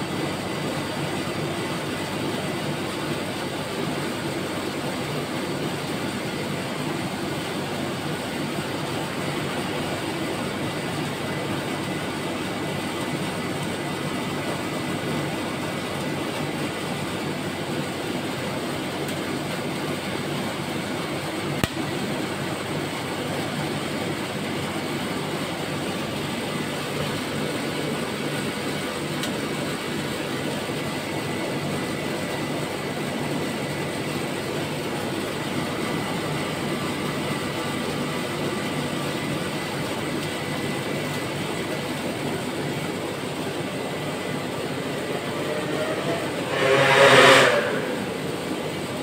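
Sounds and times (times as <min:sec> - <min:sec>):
refrigeration compressor running: 0:00.0 - 0:49.0.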